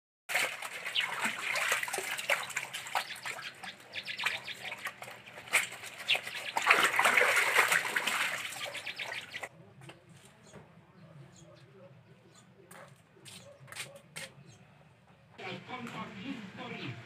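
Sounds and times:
clothes scrubbed by hand: 0.3s - 9.5s
water sloshing in basin: 0.3s - 9.5s.

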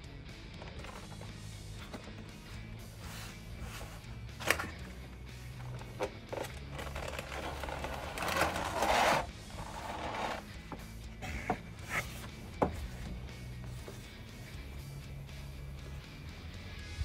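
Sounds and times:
quiet background music: 0.0s - 17.0s
cardboard packaging scraping: 2.9s - 4.2s, 6.3s - 10.6s, 11.2s - 12.4s.

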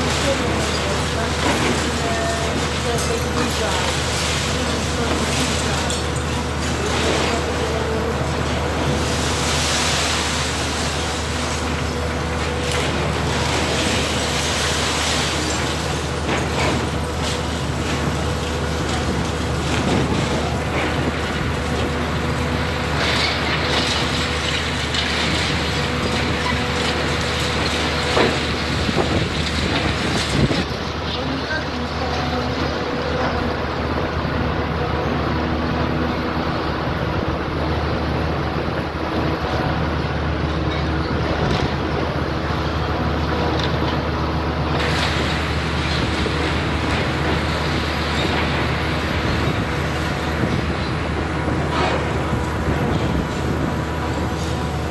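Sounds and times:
concrete cracking and debris falling: 0.0s - 32.4s
excavator engine drone: 0.0s - 54.9s.

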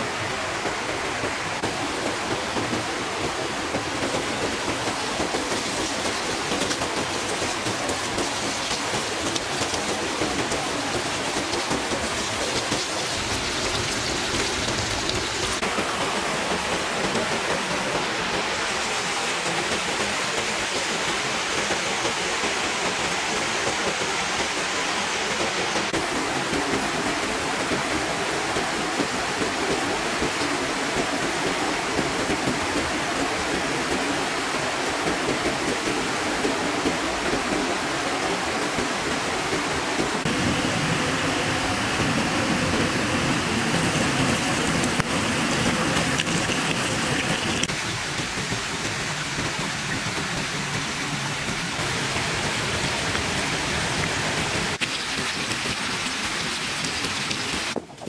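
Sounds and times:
water rushing over rocks: 1.6s - 21.3s, 25.8s - 58.0s.

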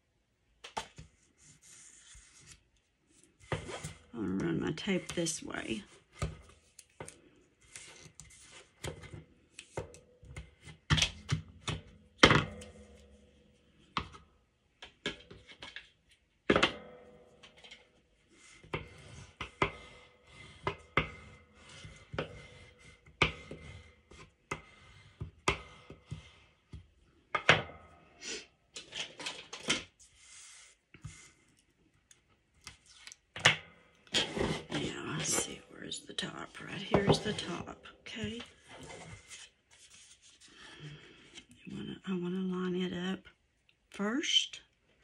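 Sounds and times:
paper handled on a tabletop: 0.6s - 11.8s, 29.5s - 33.4s, 36.5s - 40.9s.

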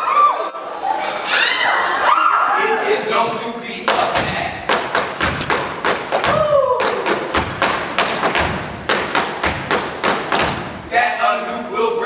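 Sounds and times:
canes and shoes tapping wooden stage: 3.2s - 11.2s.

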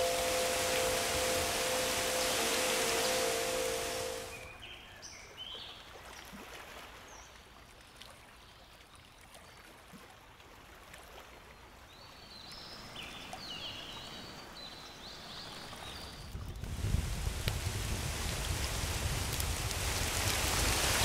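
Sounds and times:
faint running water: 0.0s - 4.5s
short high tones: 0.0s - 4.5s.

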